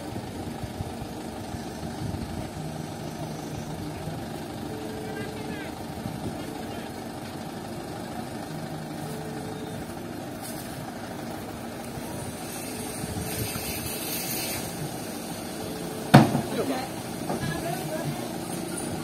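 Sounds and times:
diesel engine idling: 0.0 - 19.0.

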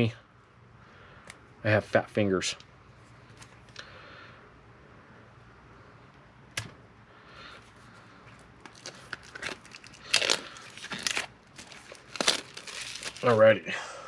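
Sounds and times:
shrink-wrap crinkling and tearing: 8.5 - 13.5.

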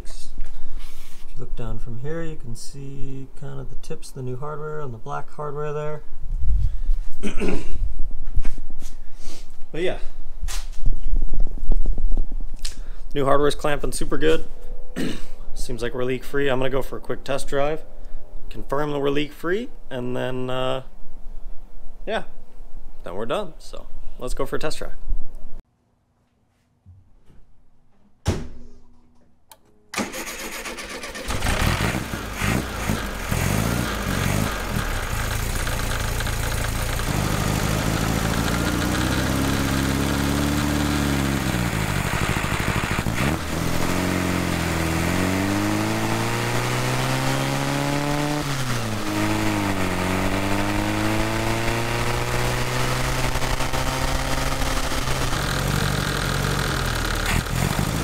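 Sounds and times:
air-cooled car engine: 30.0 - 58.0
road and wind noise: 31.2 - 58.0.

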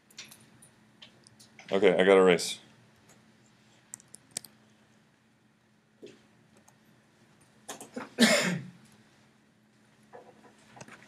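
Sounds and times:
faint steady hum: 0.0 - 11.0
soft clicks: 3.9 - 4.6
person coughing: 8.0 - 8.8.

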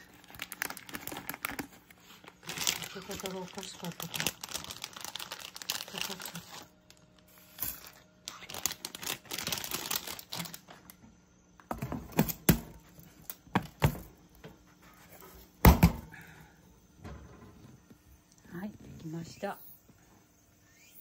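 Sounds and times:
dry spaghetti rustling: 0.0 - 10.8
knocks on plastic canister: 15.6 - 16.1.

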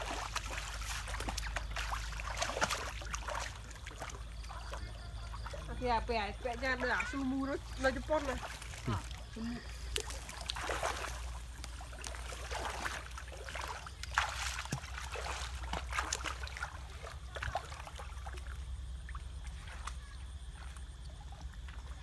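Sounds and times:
muddy water sloshing and splashing: 0.0 - 22.0.

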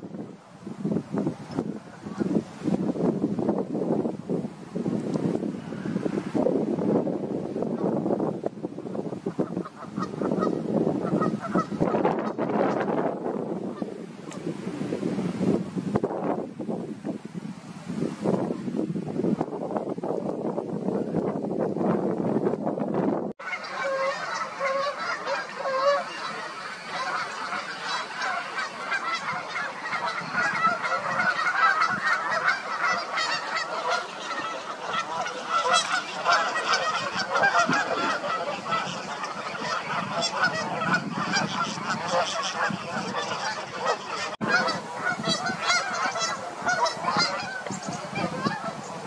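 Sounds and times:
flock of geese honking: 1.5 - 2.6, 9.2 - 13.9, 23.4 - 49.0.

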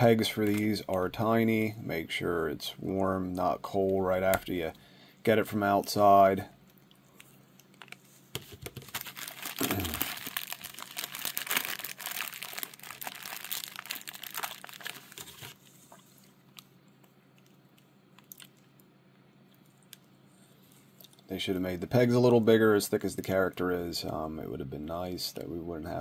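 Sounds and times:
plastic bag crinkling: 7.7 - 16.7.

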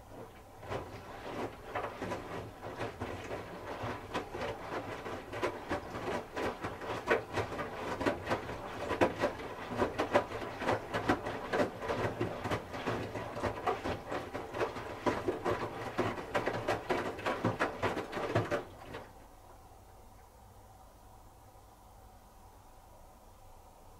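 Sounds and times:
laundry thudding in washing machine drum: 0.6 - 19.1.

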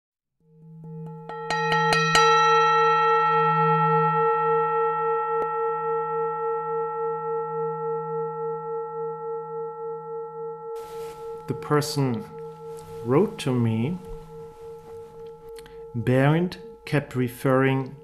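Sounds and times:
singing bowl ringing: 0.5 - 18.0
bright metallic strikes: 10.7 - 18.0.

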